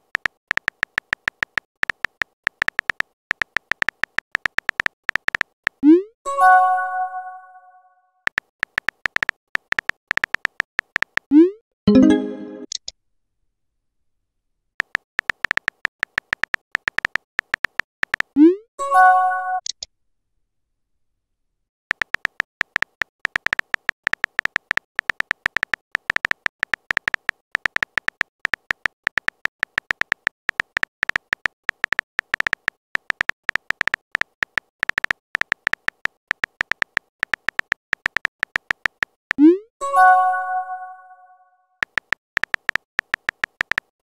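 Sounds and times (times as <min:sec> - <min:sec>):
phone keyboard typing clicks: 0:00.0 - 0:06.0, 0:08.3 - 0:12.9, 0:14.8 - 0:18.4, 0:21.9 - 0:39.4, 0:41.8 - 0:44.0.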